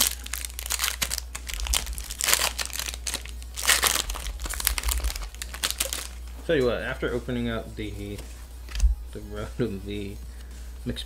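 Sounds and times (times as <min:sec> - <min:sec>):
foil wrapper crinkling: 0:00.0 - 0:06.3.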